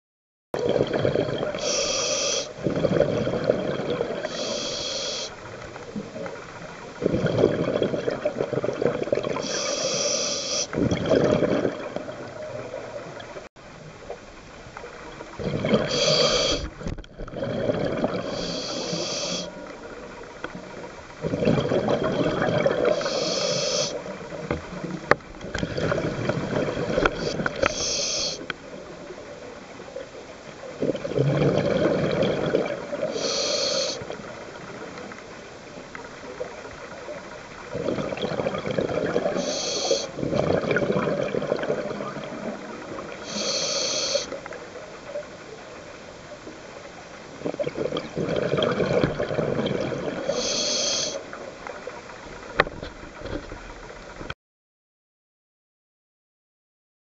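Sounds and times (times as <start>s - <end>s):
regulator hiss on inhale: 1.6s - 2.6s, 4.2s - 5.7s, 9.4s - 10.8s, 15.8s - 16.8s, 18.2s - 19.7s, 22.8s - 24.1s, 27.1s - 28.6s, 33.0s - 34.2s, 39.3s - 40.2s, 43.1s - 44.4s, 50.2s - 51.3s.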